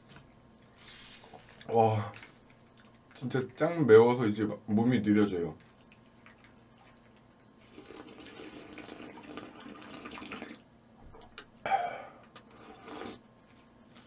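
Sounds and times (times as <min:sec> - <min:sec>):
person slurping a drink: 0:12.4 - 0:13.2.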